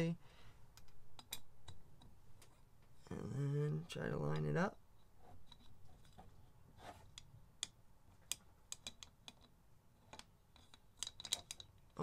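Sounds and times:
small metal parts clicking: 10.1s - 12.0s.

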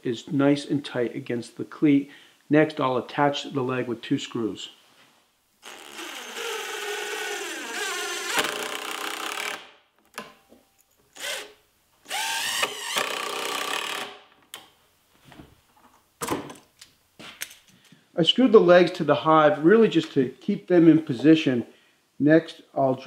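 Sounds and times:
cordless drill driving screws: 5.6s - 9.7s, 11.2s - 11.5s, 12.1s - 14.2s.

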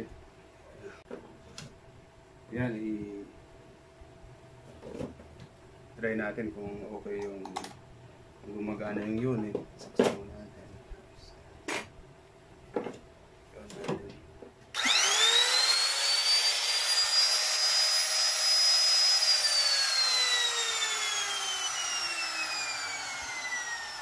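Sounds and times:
router motor whining: 14.8s - 24.0s.

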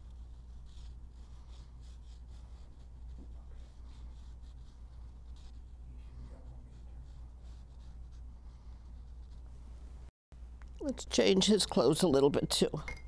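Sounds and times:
wet brush on paper: 0.0s - 9.6s
low steady hum: 0.0s - 13.0s.

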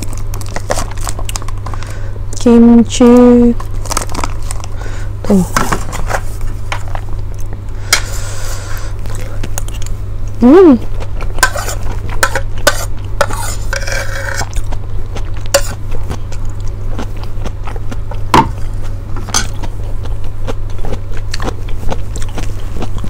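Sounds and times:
low electrical hum: 0.0s - 23.0s
cutlery scraping a plate: 11.4s - 14.6s, 15.5s - 15.8s.

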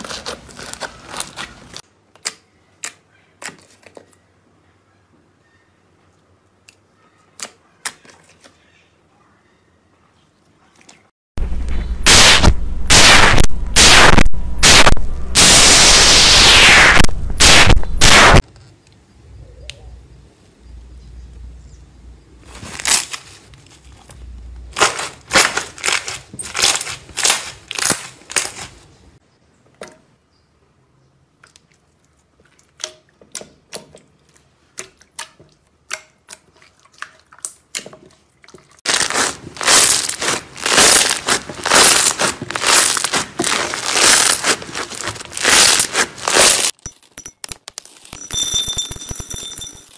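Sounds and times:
slime squeezed crackling and popping: 38.9s - 46.8s.

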